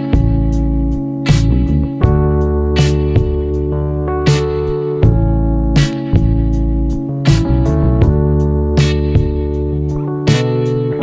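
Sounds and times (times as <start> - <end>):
instrumental music with sustained chords: 0.0 - 11.0.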